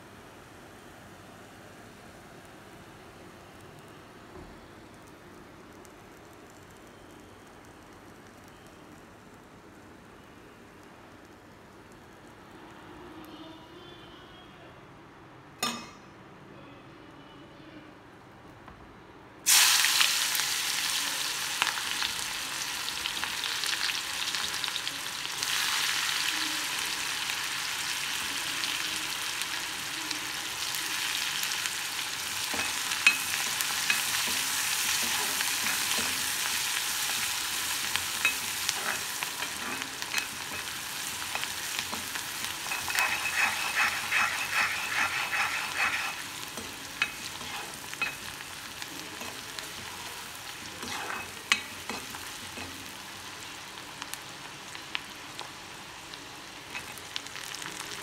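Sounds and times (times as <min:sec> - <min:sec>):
onions sizzling in hot oil: 0:19.4 - 0:58.0
wooden spoon scraping pan: 0:42.6 - 0:48.2, 0:50.8 - 0:52.1.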